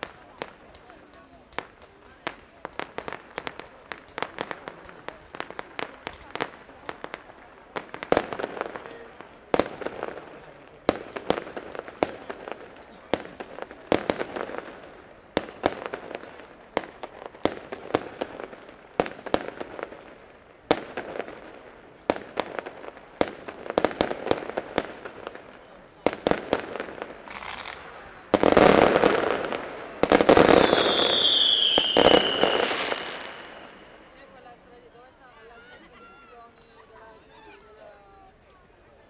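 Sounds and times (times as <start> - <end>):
fireworks crackling: 0.0 - 39.0
firework shells bursting: 28.4 - 34.0.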